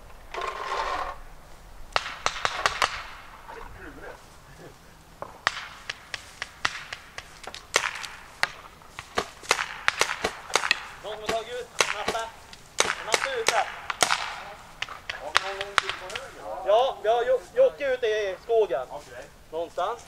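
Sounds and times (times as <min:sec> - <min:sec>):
paintball markers popping: 0:05.2 - 0:16.4.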